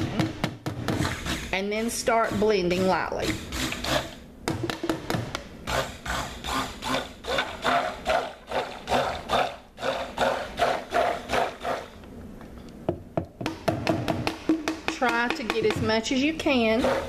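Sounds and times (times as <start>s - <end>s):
stick blender sloshing and knocking: 7.3s - 11.9s, 13.8s - 17.0s.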